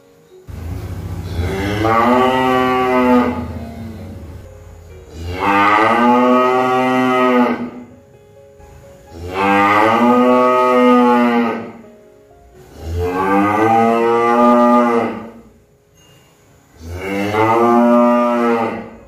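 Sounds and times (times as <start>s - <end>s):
cow mooing: 0.5s - 4.5s, 5.1s - 7.9s, 9.1s - 11.8s, 12.7s - 15.5s, 16.8s - 19.0s.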